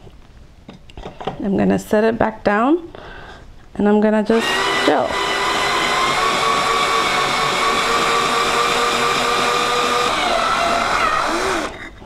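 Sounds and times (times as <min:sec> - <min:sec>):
drill whining: 0:04.3 - 0:12.0
bit grinding through ceramic: 0:04.4 - 0:12.0.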